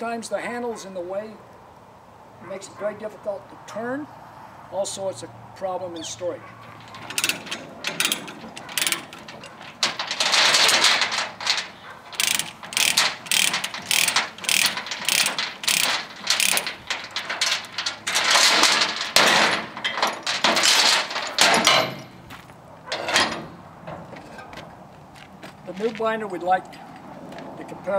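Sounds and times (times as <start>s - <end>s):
chain rattling: 6.4s - 22.3s, 22.9s - 23.6s
ratchet clicking: 6.8s - 21.8s.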